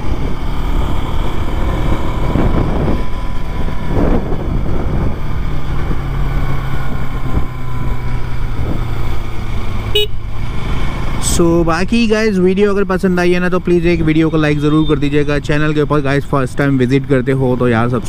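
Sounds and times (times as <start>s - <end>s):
wind buffeting microphone: 0.0s - 9.3s
motorcycle engine running: 0.0s - 16.3s.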